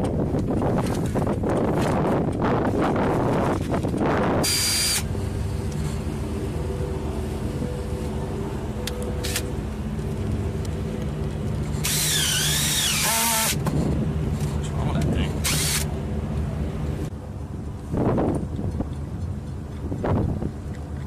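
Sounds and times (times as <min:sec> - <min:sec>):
boat engine idling: 0:01.4 - 0:17.8
power drill whining: 0:04.4 - 0:05.1, 0:11.8 - 0:13.6, 0:15.4 - 0:15.9.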